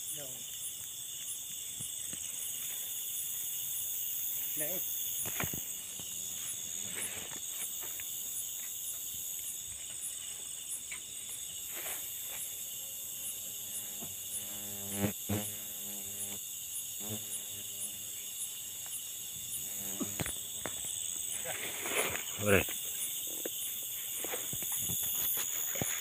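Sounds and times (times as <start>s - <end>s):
crickets and insects shrilling: 0.0s - 26.0s
pulsing insect chirp: 0.0s - 26.0s
rustles: 5.1s - 12.7s, 19.9s - 26.0s.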